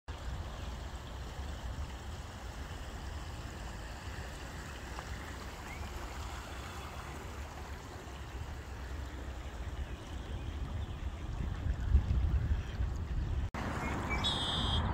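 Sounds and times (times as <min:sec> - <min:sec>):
river water lapping around kayak: 0:00.1 - 0:14.8
wind buffeting microphone: 0:09.7 - 0:13.8.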